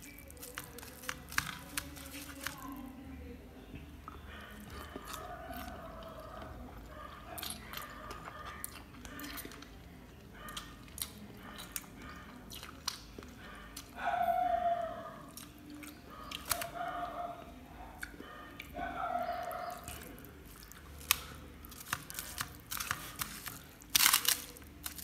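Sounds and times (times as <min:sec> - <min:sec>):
fingers squelching in rice: 0:00.0 - 0:02.9, 0:18.6 - 0:25.0
chewing and wet mouth clicks: 0:07.4 - 0:13.9, 0:15.3 - 0:16.7, 0:18.0 - 0:18.8, 0:19.6 - 0:25.0.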